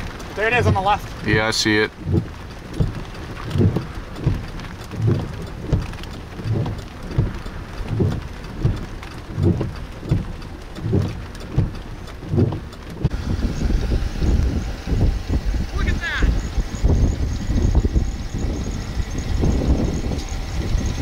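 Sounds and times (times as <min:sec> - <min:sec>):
heavy rain drumming on car: 0:00.0 - 0:21.0
windshield wipers thumping: 0:00.0 - 0:21.0.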